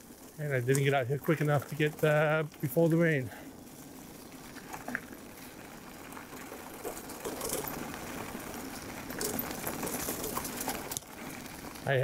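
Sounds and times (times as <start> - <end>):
tyres on leafy path: 0.0 - 12.0
electric bike motor whirring: 2.7 - 12.0.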